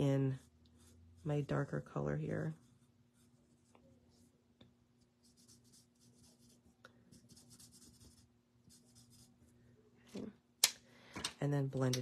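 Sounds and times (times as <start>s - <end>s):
marker scratching on cardstock: 5.2s - 9.3s.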